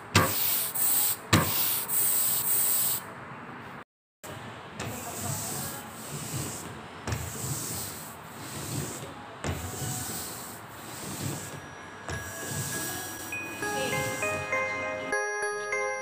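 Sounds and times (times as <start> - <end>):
printmaking roller rolling on paper: 4.8 - 14.5.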